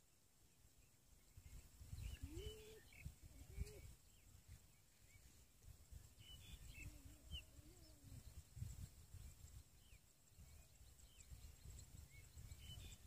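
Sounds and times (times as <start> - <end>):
small birds chirping: 0.4 - 13.0
doves cooing: 2.1 - 3.9.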